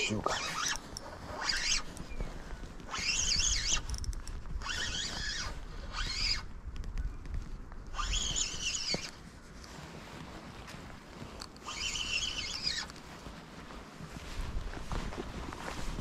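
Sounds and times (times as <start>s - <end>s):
fishing reel whirring: 0.0s - 1.9s, 2.9s - 6.5s, 7.9s - 9.0s, 11.6s - 12.9s
wind rumble on microphone: 0.0s - 16.0s.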